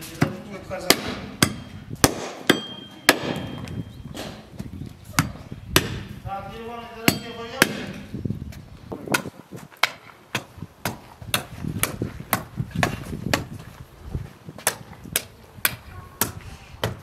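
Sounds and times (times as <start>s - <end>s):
pickaxe striking earth: 7.1s - 8.0s, 9.0s - 13.6s.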